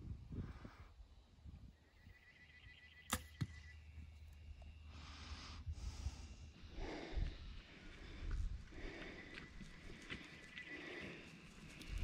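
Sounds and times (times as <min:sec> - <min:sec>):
arrow striking animal knock: 0:03.1 - 0:03.7.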